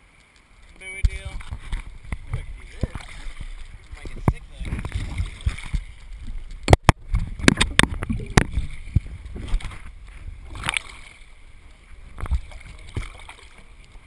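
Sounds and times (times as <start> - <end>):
water slapping against kayak: 0.6 - 14.0
wind on microphone: 0.9 - 14.0.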